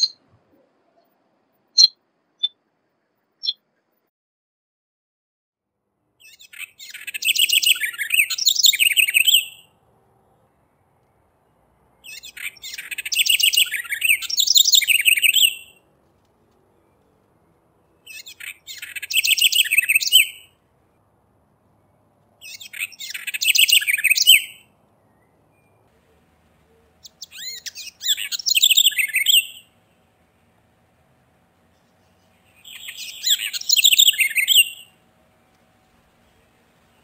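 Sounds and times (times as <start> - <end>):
wren singing: 0.0 - 0.2, 1.8 - 2.6, 3.4 - 3.6, 6.2 - 9.7, 12.0 - 15.8, 18.0 - 20.6, 22.4 - 25.8, 26.6 - 29.9, 31.7 - 35.1.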